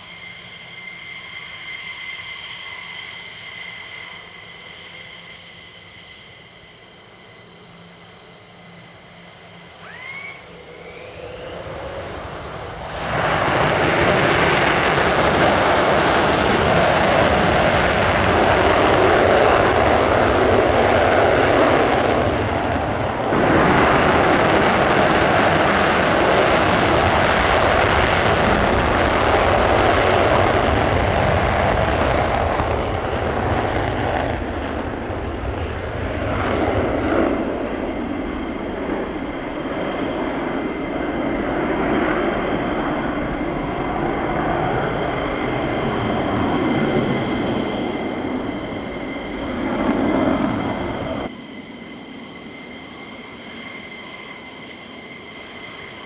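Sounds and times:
jet engine roaring: 0.0s - 56.0s
high whistling tones: 9.7s - 11.7s.

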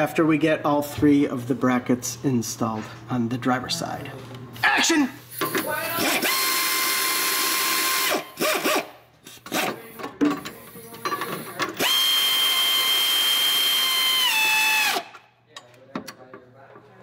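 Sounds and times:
air ratchet whining: 5.3s - 15.2s.

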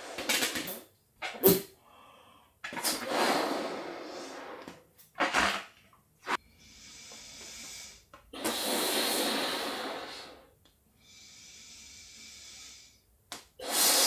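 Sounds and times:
woman blowing into balloon: 2.8s - 4.8s, 6.6s - 12.9s, 13.6s - 14.0s
quick breaths: 6.3s - 14.0s.

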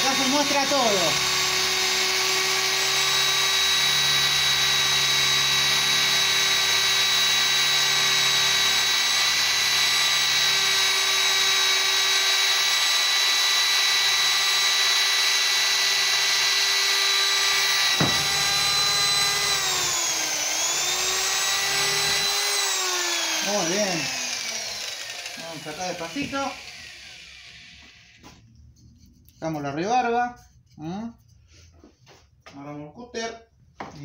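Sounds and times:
electric drill boring into wood: 0.0s - 28.4s
single knock: 18.0s - 18.3s.

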